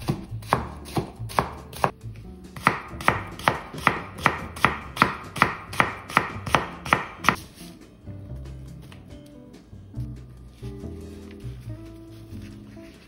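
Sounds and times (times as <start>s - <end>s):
knife chopping on cutting board: 0.0s - 2.0s, 2.6s - 7.4s
faint background music: 0.0s - 13.0s.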